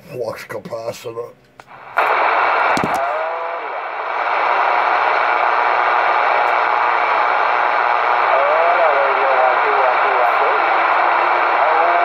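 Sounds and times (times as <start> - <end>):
radio static rush: 1.7 - 12.0
garbled warbling radio voices: 8.2 - 12.0.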